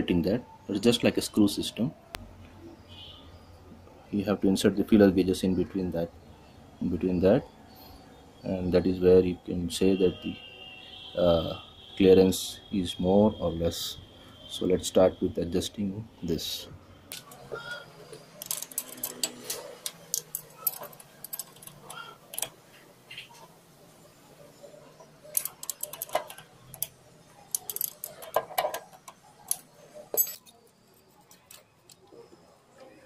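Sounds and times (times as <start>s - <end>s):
metal hand tools clicking and tapping: 18.1s - 22.6s, 25.3s - 32.1s.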